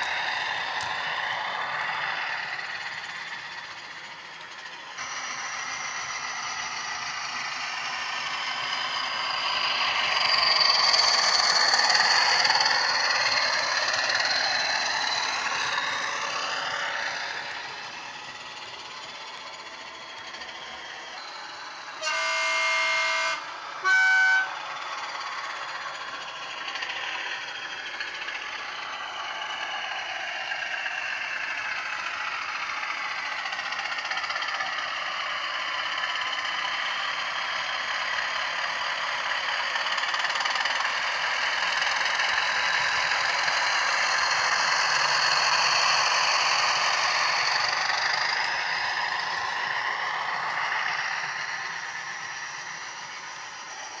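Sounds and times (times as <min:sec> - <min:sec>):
diesel engine sound: 0:00.0 - 0:54.0
model train horn: 0:22.0 - 0:24.6.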